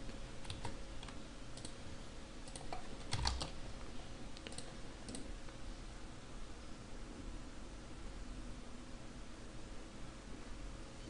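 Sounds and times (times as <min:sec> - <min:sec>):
faint room noise: 0:00.0 - 0:11.0
keyboard and mouse clicks: 0:00.4 - 0:01.8, 0:02.5 - 0:03.6, 0:04.4 - 0:05.3.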